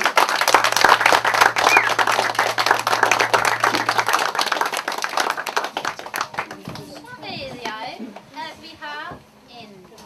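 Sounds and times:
audience applause: 0.0 - 7.2.

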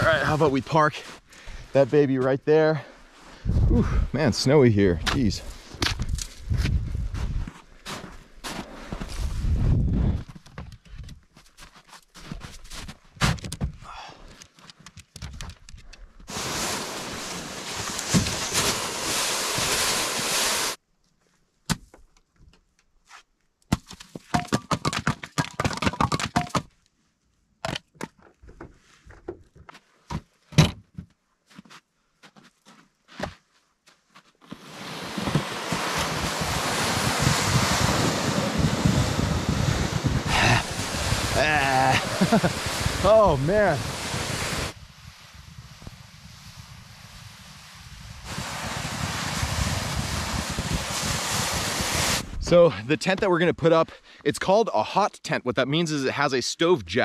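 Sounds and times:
wind buffeting microphone: 3.4 - 4.2, 6.0 - 7.4, 35.8 - 52.5
footsteps in snow: 5.4 - 10.2, 11.3 - 13.1
sled scraping over snow: 16.3 - 20.8, 34.4 - 44.8, 45.4 - 52.5.

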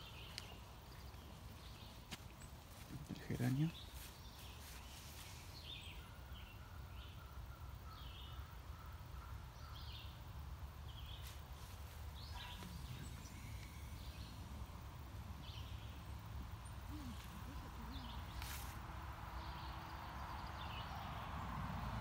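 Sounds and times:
bird chirps: 12.1 - 18.8.

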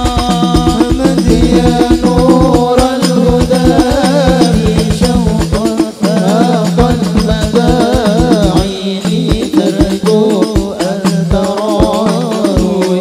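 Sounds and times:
hand-struck frame drums: 0.0 - 13.0
men singing into microphones: 0.0 - 13.0.

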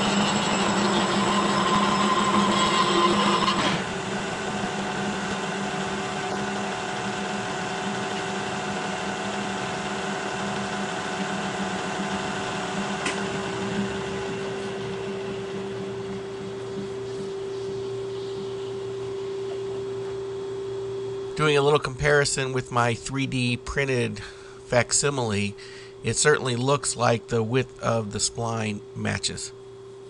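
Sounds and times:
milling machine cutting: 0.0 - 16.8
steady hum with tone: 0.0 - 30.0.

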